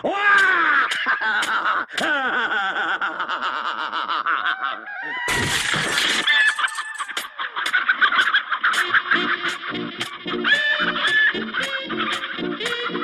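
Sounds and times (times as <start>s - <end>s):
wooden fence splintering crash: 5.3s - 7.0s
hens squawking: 6.3s - 13.0s
music: 8.7s - 13.0s
cartoon voice whooping and laughing: 10.4s - 13.0s.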